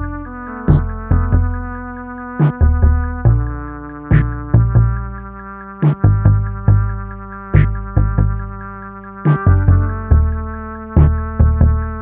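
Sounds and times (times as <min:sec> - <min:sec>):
sustained synthesizer chords: 0:00.0 - 0:12.0.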